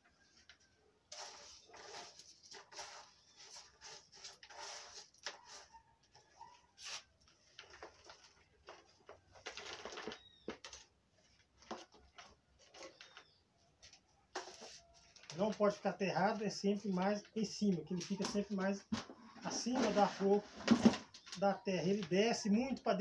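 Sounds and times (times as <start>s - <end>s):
hands scraping potting substrate: 1.1s - 5.8s, 19.4s - 20.5s.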